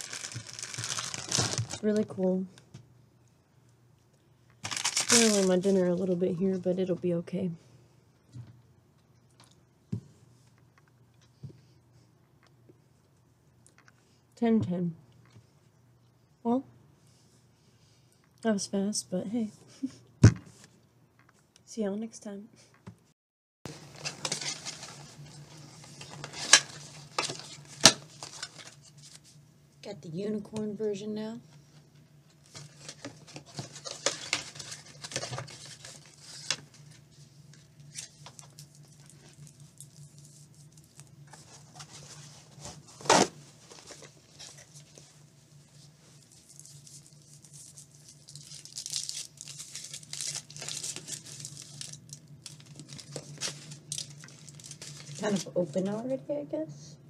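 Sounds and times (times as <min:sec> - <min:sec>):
foil wrapper crinkling: 0:00.0 - 0:02.1, 0:04.6 - 0:06.0, 0:23.7 - 0:29.3, 0:32.4 - 0:37.0, 0:37.8 - 0:42.1, 0:45.8 - 0:55.5.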